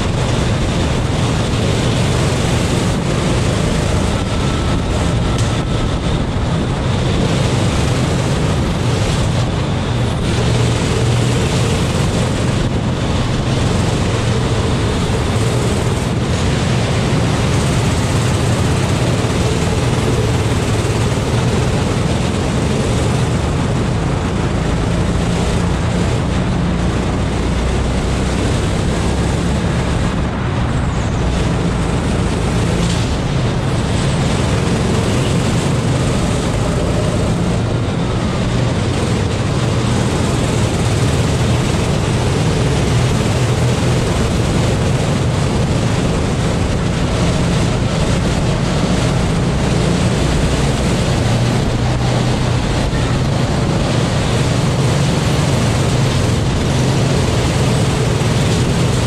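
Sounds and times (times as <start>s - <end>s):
kart engine racing: 0.0s - 59.0s
wind buffeting microphone: 0.0s - 59.0s.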